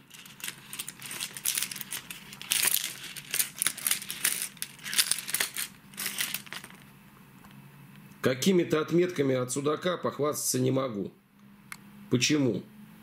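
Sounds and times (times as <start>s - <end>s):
crinkling rustles: 0.0s - 6.9s.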